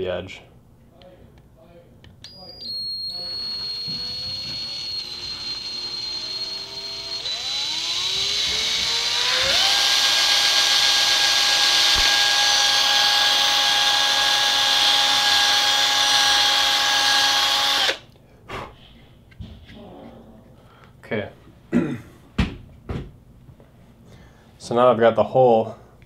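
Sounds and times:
electric drill whining: 0:02.3 - 0:18.0.

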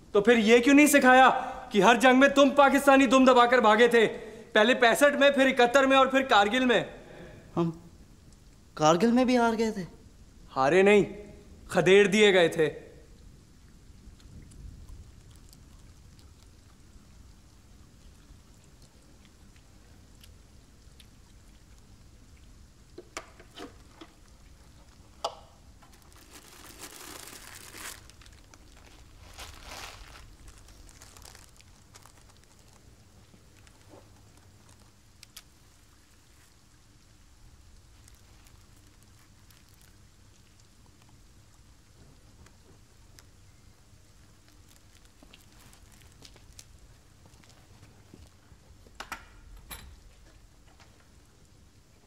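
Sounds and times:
faint low hum: 0:00.0 - 0:52.0
foil crinkling: 0:25.8 - 0:35.5, 0:37.9 - 0:40.6, 0:44.3 - 0:47.6.

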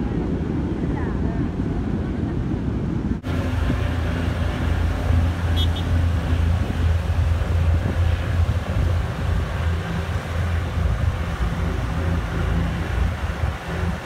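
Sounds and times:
wind buffeting microphone: 0:00.0 - 0:14.0
boat engine drone: 0:03.2 - 0:14.0.

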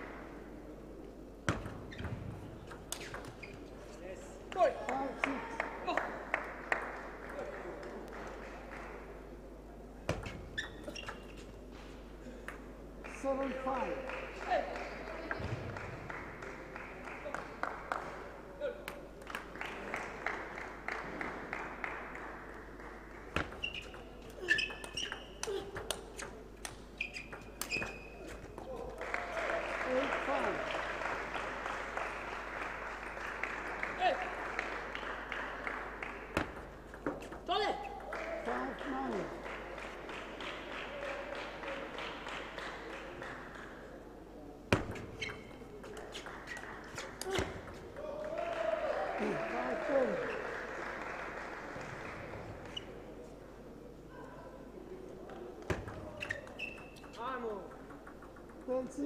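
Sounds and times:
shoe squeaking on floor: 0:01.6 - 0:04.0, 0:10.1 - 0:12.0, 0:23.4 - 0:28.7, 0:44.7 - 0:47.6, 0:55.7 - 0:57.2
table tennis ball bouncing: 0:23.3 - 0:28.6, 0:36.3 - 0:38.1, 0:55.6 - 0:59.0
table tennis ball clicking: 0:56.2 - 0:59.0.

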